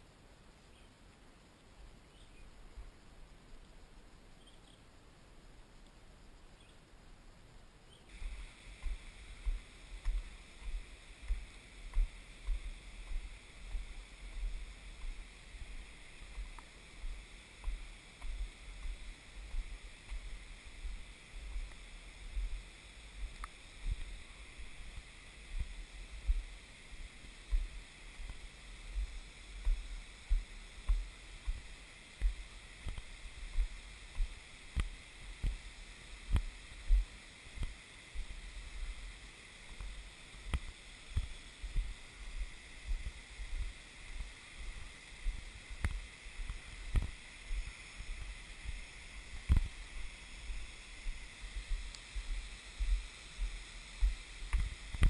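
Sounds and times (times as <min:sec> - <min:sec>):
steady high hiss: 0:00.0 - 0:55.0
footsteps dull thumps: 0:08.1 - 0:22.6, 0:23.2 - 0:26.5, 0:27.5 - 0:35.6.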